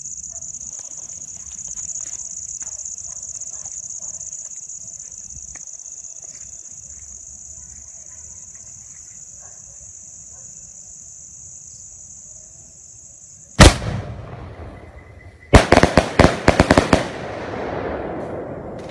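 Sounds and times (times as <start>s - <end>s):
crickets chirring: 0.0s - 18.9s
firework crackling pops: 13.6s - 18.9s
loud firework bang: 13.6s - 18.9s.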